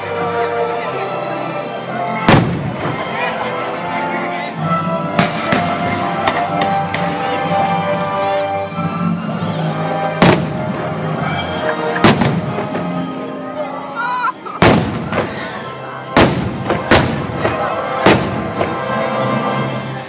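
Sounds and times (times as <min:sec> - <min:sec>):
music: 0:00.0 - 0:20.0
fireworks bangs: 0:02.3 - 0:03.2, 0:05.2 - 0:07.3, 0:10.2 - 0:11.1, 0:12.0 - 0:13.0, 0:14.6 - 0:19.0.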